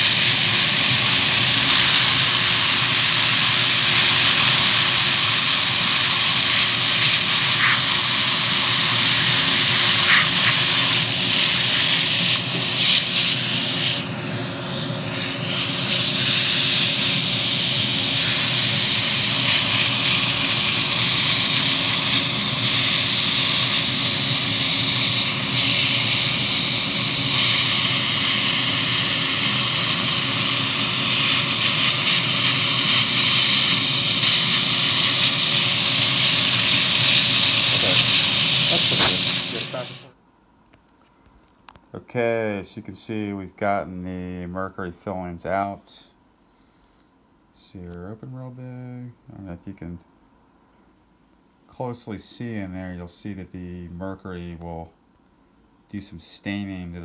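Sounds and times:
dental drill whine: 0.0s - 40.1s
suction hiss: 0.0s - 40.2s.

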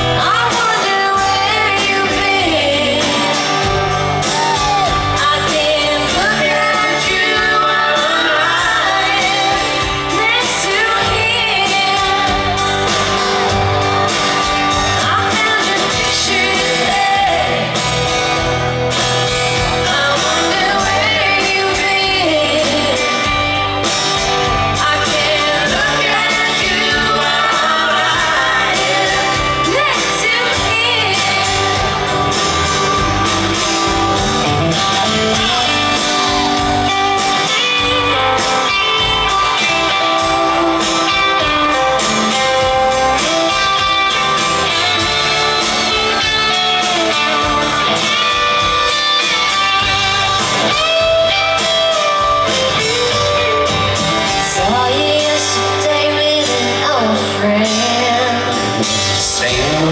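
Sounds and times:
man and woman singing: 0.0s - 13.5s, 14.9s - 18.0s, 19.7s - 23.6s, 24.5s - 32.1s, 54.3s - 59.9s
strummed acoustic guitar: 0.0s - 59.9s.

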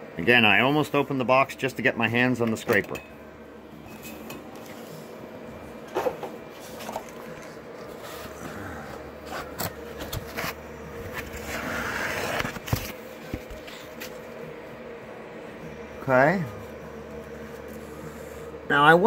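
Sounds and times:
foam rustling and scraping: 6.0s - 14.0s.

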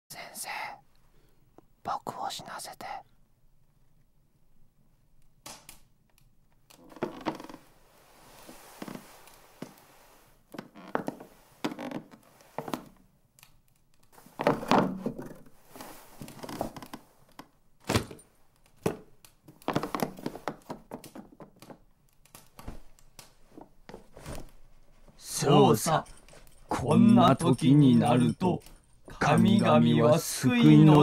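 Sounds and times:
rustling: 6.9s - 12.9s, 14.1s - 17.4s.

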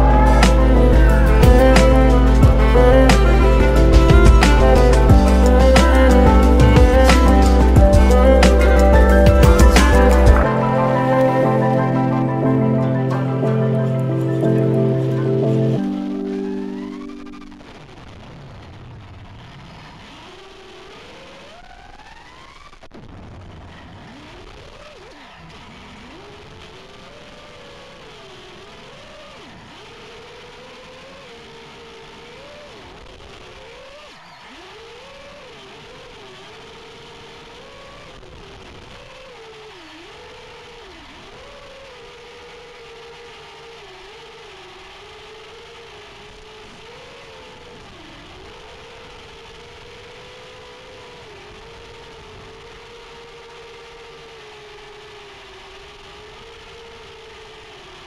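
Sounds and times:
drone motors whining: 0.0s - 17.7s, 27.2s - 58.0s.

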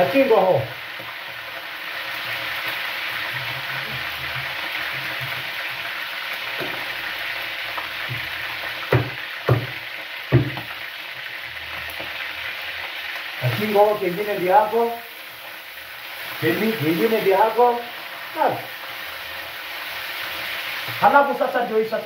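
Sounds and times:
meat sizzling in oil: 0.0s - 22.0s
knife knocking on cutting board: 8.9s - 10.7s.

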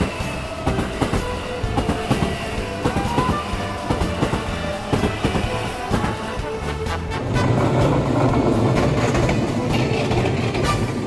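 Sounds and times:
music with a steady beat: 0.0s - 8.5s.

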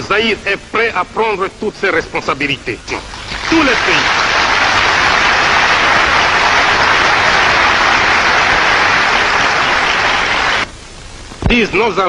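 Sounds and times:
audience applauding: 3.1s - 10.7s.

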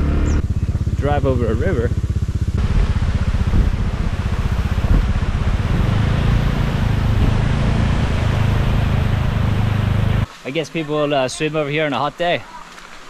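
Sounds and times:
motorcycle engine running: 0.0s - 10.2s
steady hiss: 8.2s - 13.0s.

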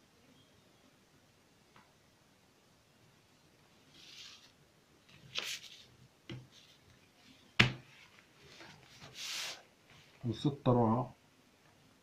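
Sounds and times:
paper rustle: 3.9s - 5.9s, 7.9s - 10.1s
ruler scraping over paper: 8.5s - 9.6s.

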